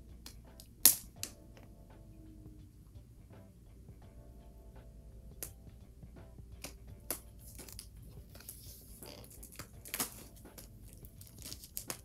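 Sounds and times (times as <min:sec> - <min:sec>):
plastic shrink wrap crinkling: 0:07.5 - 0:12.0.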